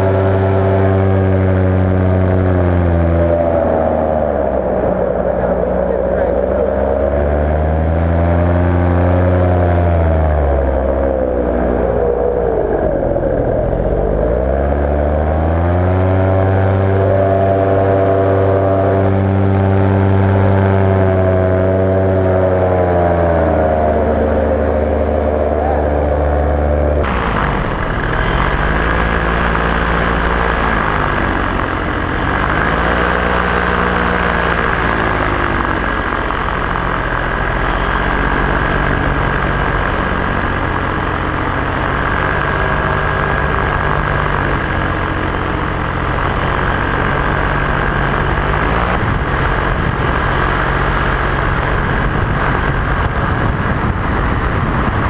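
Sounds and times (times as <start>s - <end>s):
high whine: 0.0s - 55.0s
paramotor engine and propeller: 0.0s - 55.0s
rushing air: 15.4s - 55.0s.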